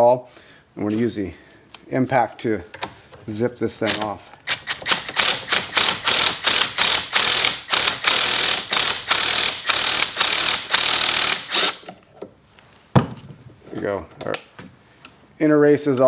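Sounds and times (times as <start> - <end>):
impact wrench hammering: 3.9 - 11.9.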